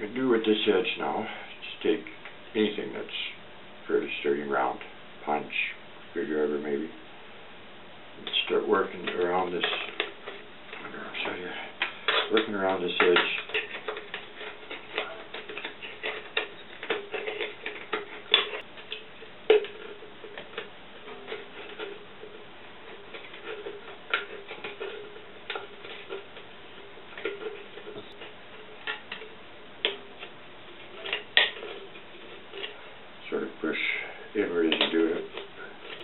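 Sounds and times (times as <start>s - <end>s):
screwdriver scraping tin can: 11.2s - 32.8s.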